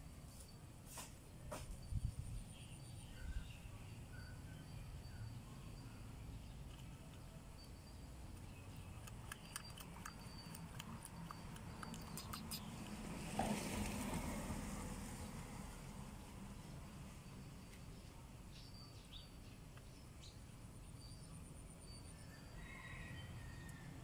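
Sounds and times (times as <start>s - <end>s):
faint high chirps: 1.7s - 13.1s.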